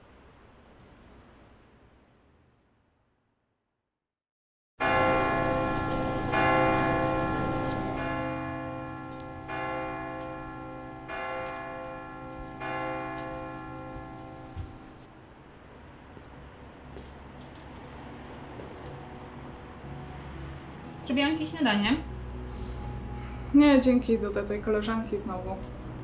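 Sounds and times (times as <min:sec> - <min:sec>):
bell-like chime ringing: 0:04.8 - 0:15.1.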